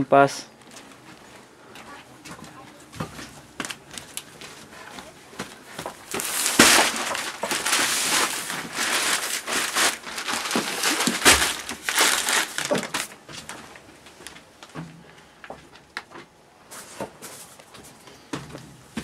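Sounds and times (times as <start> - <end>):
close rustling and crinkling: 0.5 - 14.8.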